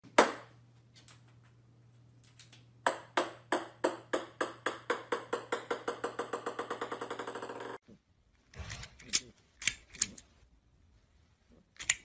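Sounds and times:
ping-pong ball bouncing on wood: 0:02.8 - 0:07.8.

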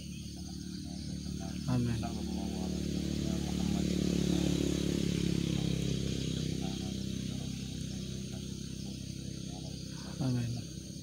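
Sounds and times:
engine running steadily: 0:00.0 - 0:11.0.

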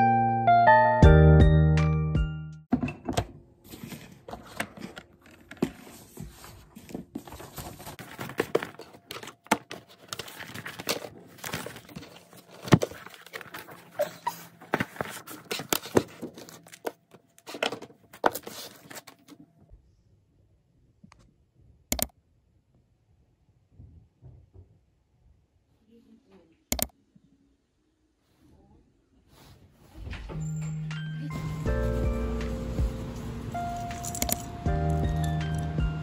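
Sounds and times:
rustling: 0:03.7 - 0:19.4
small objects clicking and clinking: 0:33.8 - 0:35.7.

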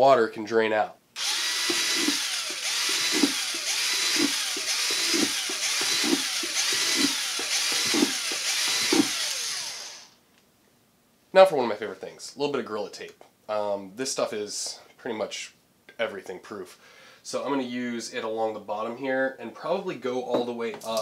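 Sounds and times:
cordless drill boring through plastic: 0:01.2 - 0:10.2.

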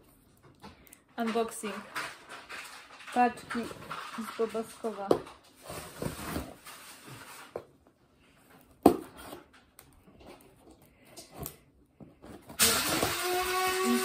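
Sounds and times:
cardboard rustling: 0:02.3 - 0:07.9
scissors slitting packing tape: 0:12.6 - 0:14.0.

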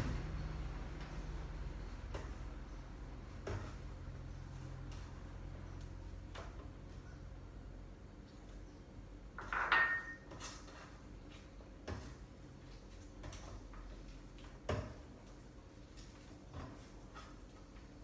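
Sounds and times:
low steady hum: 0:00.0 - 0:18.0
dishes clattering: 0:09.4 - 0:10.6.

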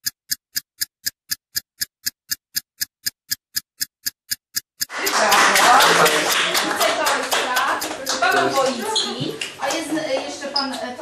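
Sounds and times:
clock-like ticking: 0:00.0 - 0:05.3, 0:07.2 - 0:08.4.

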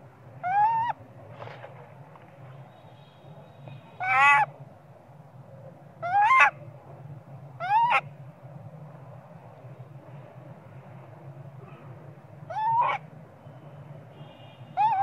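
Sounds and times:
baby monkey crying: 0:00.4 - 0:01.0, 0:12.5 - 0:13.0, 0:14.8 - 0:15.0.

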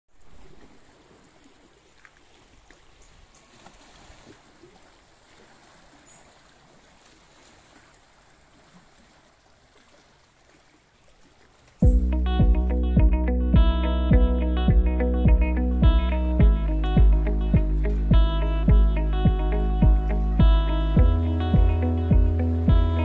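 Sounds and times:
waves lapping against rocks: 0:00.1 - 0:11.8.

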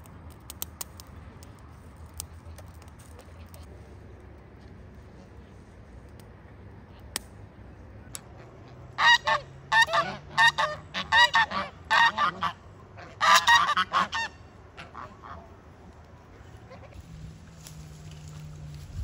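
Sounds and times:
fowl calling: 0:08.4 - 0:15.5.

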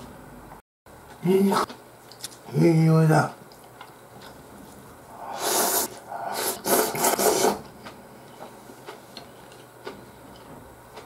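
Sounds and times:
man slurping noodles: 0:05.1 - 0:07.6.

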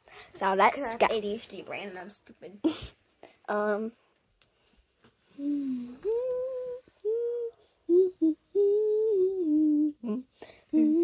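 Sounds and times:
girl humming: 0:05.3 - 0:11.0.

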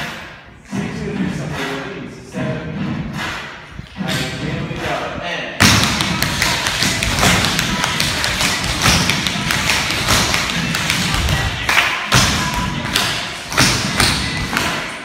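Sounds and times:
music playing: 0:00.0 - 0:15.0
tap shoes on wooden floor: 0:05.7 - 0:11.4.

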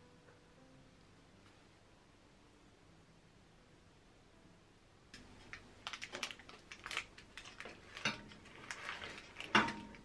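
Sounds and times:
kitchen clicks and knocks: 0:07.6 - 0:10.0.

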